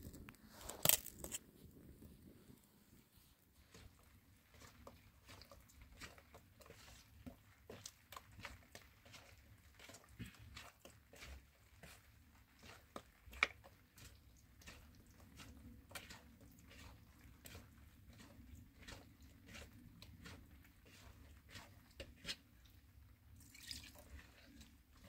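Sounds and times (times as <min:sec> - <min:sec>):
dough squelching and slapping: 0:03.0 - 0:25.0
water pouring: 0:23.4 - 0:24.8.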